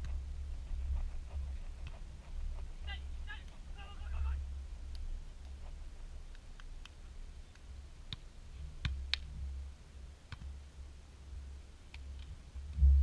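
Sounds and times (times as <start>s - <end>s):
low steady rumble: 0.0s - 13.0s
hands slapping volleyball: 6.3s - 9.3s, 10.3s - 10.6s.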